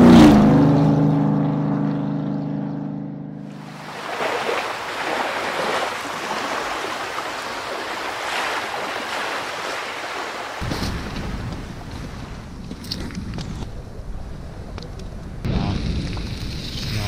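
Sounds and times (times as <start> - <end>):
surf washing up beach: 3.5 - 12.6
wind rumble on microphone: 10.6 - 17.0.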